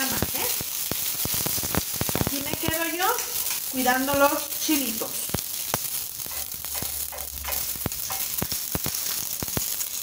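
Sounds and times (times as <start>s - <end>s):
chiles sizzling and crackling: 0.0s - 10.0s.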